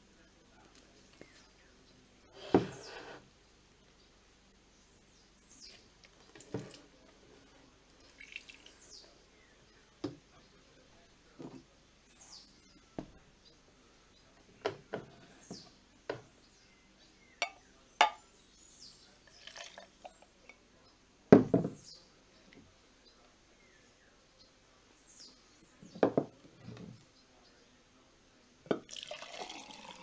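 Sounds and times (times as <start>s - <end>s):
birds chirping faintly: 0.0s - 30.0s
glass jars knocking and clinking: 17.4s - 18.2s.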